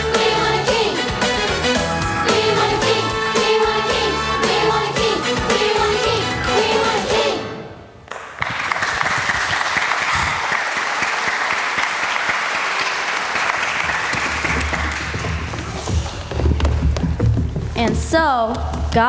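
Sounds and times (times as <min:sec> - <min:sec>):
audience applauding: 0:08.1 - 0:15.9.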